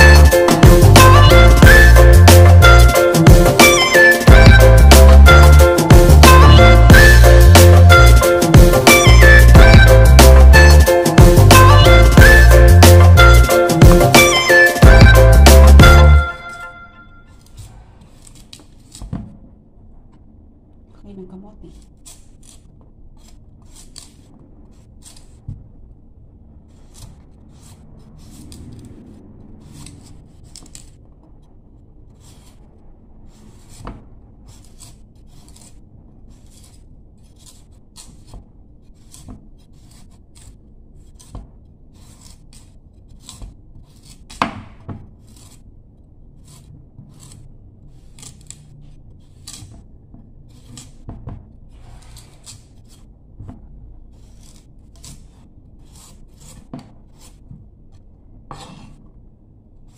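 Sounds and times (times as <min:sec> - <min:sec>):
knife scraping vegetable skin: 0:17.3 - 0:19.1, 0:21.5 - 0:25.5, 0:26.6 - 0:53.2, 0:54.0 - 0:59.1.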